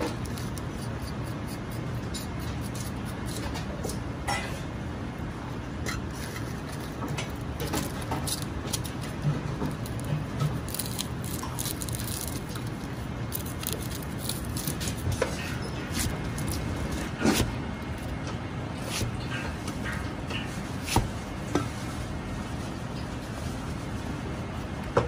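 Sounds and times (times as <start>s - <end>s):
steady low hum: 0.0s - 25.0s
onion skins crackling and rustling: 6.1s - 18.2s.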